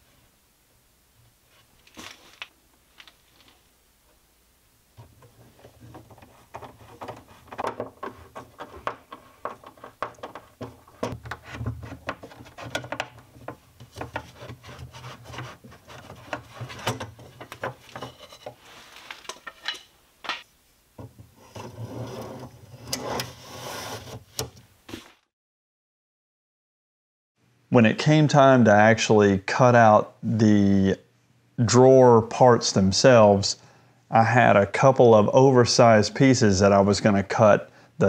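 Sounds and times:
metal and wood clicks and knocks: 5.0s - 18.6s.

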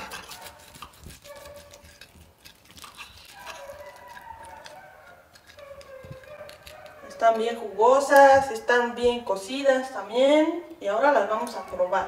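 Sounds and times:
knife crunching through crust: 0.0s - 7.6s.

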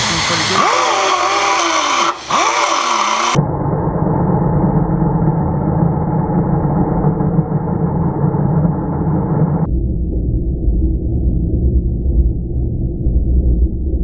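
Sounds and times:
cutoff wheel grinding metal: 0.0s - 3.4s
slowed-down muffled rumble: 3.4s - 14.0s.

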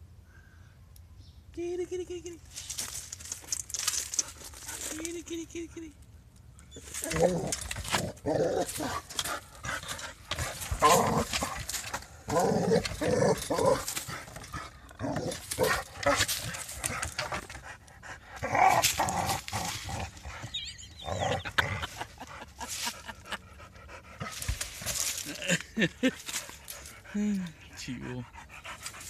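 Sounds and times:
rustling: 2.4s - 5.3s, 6.6s - 20.6s, 24.0s - 27.0s.

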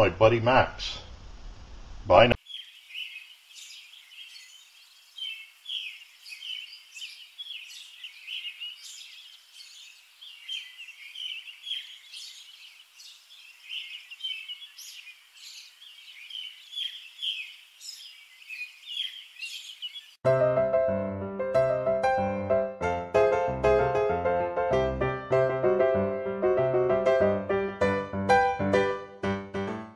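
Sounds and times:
birds chirping: 2.1s - 20.2s.

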